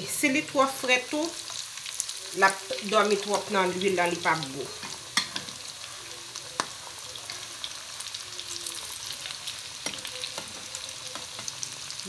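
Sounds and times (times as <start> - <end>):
chicken deep-frying in oil: 0.0 - 12.0.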